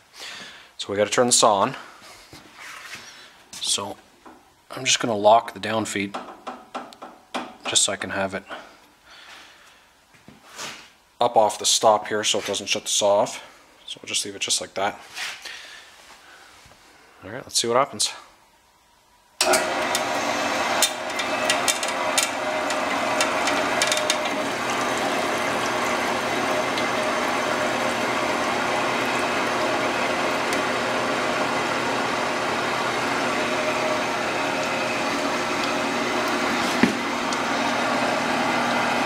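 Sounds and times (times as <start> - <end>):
bandsaw running: 19.4 - 39.0.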